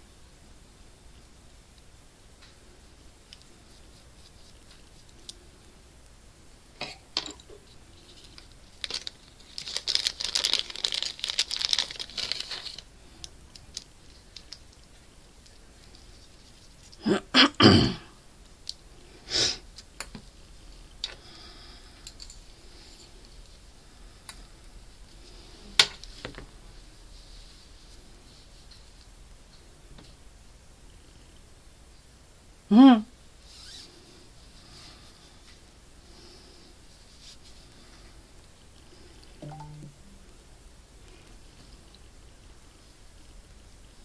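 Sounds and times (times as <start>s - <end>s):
yarn rustling: 7.6s - 12.8s.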